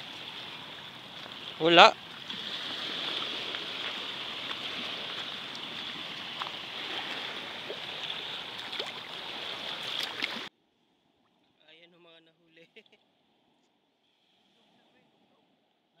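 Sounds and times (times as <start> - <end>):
water lapping on pebbles: 0.0 - 10.5.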